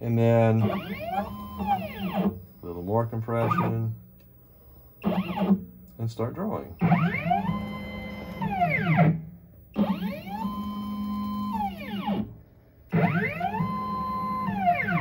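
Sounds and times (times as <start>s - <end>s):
stepper motors whining: 0.5s - 2.4s, 6.8s - 15.0s.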